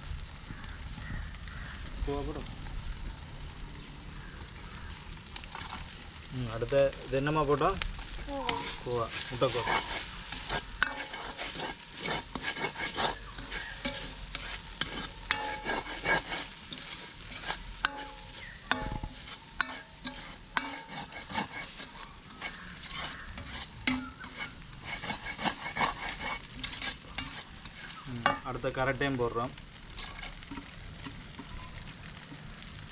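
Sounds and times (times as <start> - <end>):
cabbage sizzling in a wok: 0.0 - 32.9
metal ladle scraping a wok: 8.0 - 28.7, 29.9 - 31.5.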